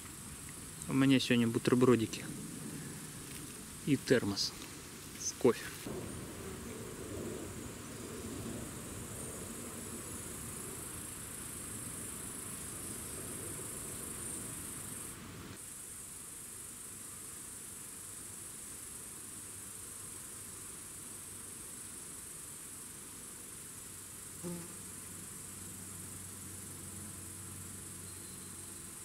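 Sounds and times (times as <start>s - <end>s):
insects chirring: 0.0s - 29.0s.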